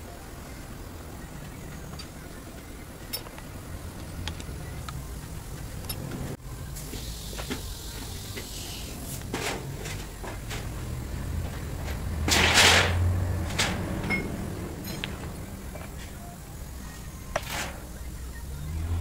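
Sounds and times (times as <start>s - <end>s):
steady low hum: 0.0s - 19.0s
metal clatters: 11.5s - 16.1s.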